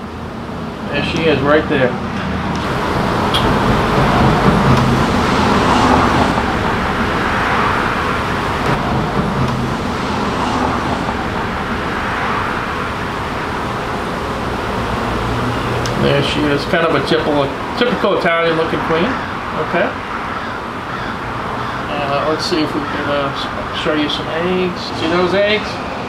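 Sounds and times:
bees buzzing: 0:01.8 - 0:16.6.

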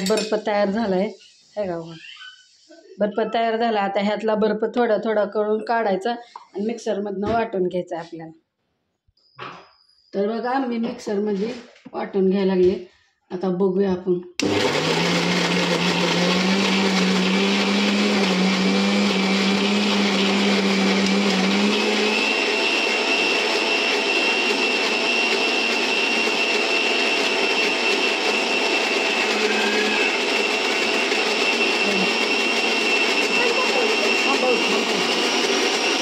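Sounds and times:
high grinder whine: 0:14.4 - 0:36.0
mixer grinder running: 0:14.4 - 0:36.0.

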